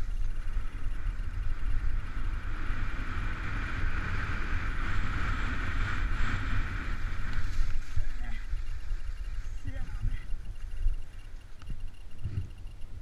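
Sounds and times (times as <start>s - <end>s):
wind rumbling on microphone: 0.0s - 13.0s
skis sliding over snow: 2.8s - 10.3s.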